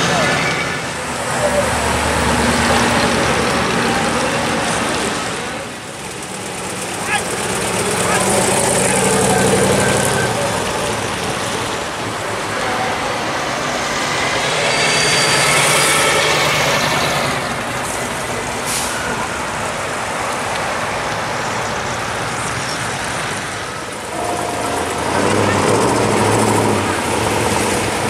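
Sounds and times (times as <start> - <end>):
car engines and tyre noise: 0.0 - 28.0
heavy truck rolling: 0.0 - 28.0.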